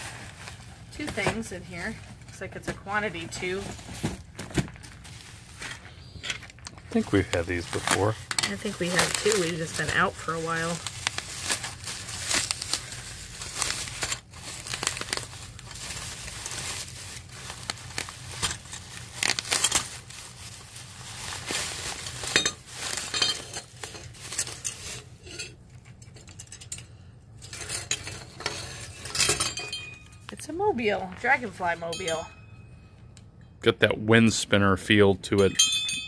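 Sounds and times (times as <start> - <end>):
bubble wrap crinkling: 0.0 - 26.0
wind chime clinking: 31.8 - 33.5, 35.4 - 36.0.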